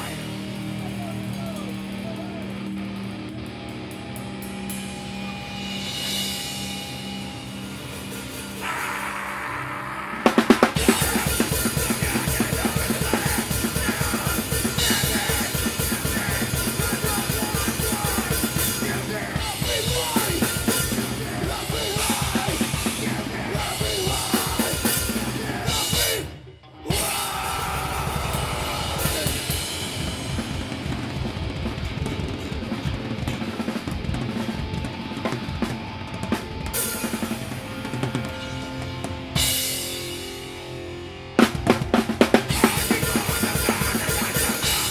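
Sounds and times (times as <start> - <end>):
live punk band playing: 0.0 - 44.9.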